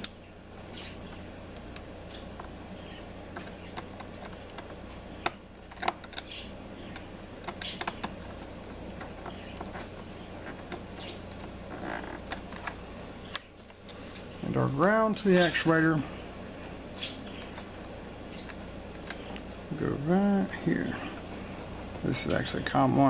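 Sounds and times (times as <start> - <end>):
steady low hum: 0.0 - 23.0
small clicks of wires in terminal: 0.8 - 11.6, 12.2 - 14.3.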